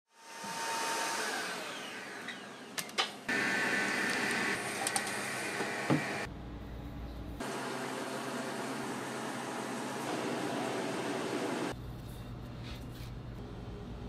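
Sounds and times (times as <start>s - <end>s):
kitchen machine whirring: 0.9s - 6.3s, 7.4s - 11.8s.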